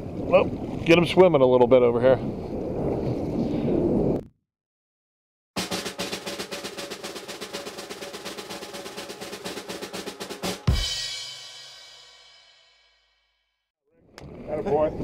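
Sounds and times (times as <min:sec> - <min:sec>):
snare drum roll: 0:05.6 - 0:12.2
cymbal crash ringing: 0:05.6 - 0:12.8.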